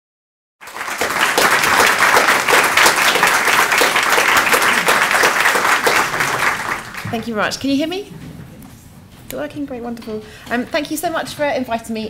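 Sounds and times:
audience applauding: 0.6 - 7.4.

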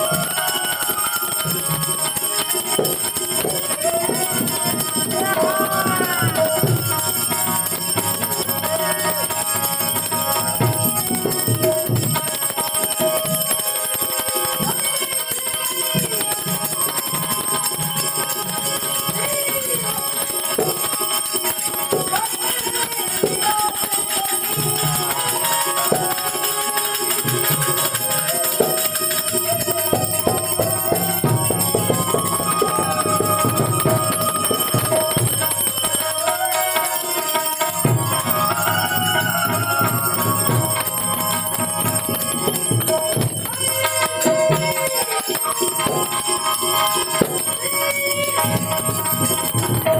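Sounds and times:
harmonium melody: 0.0 - 49.9
percussion strokes: 0.0 - 49.9.

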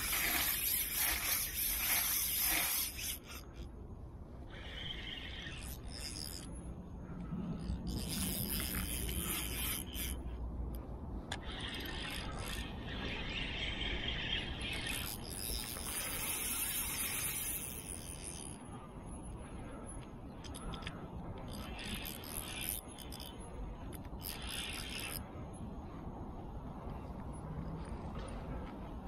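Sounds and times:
spinning reel handling rustle: 0.0 - 3.7, 5.1 - 6.6, 7.6 - 10.3, 11.3 - 18.6, 19.9 - 25.2
steady low rumble: 3.4 - 16.2.

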